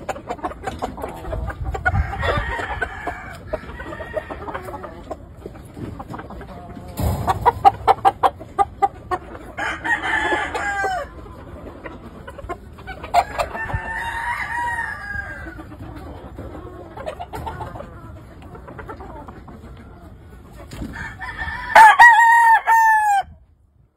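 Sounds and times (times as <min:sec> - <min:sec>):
rooster clucking: 0:00.0 - 0:23.3
roosters crowing: 0:01.0 - 0:05.2, 0:06.6 - 0:11.4, 0:12.9 - 0:15.8, 0:20.8 - 0:23.4.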